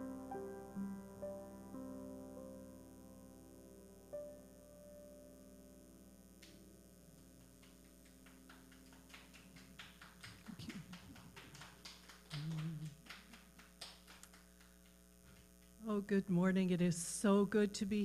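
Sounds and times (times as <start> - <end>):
upright piano notes: 0.0 - 5.6
light scattered clapping: 7.3 - 15.8.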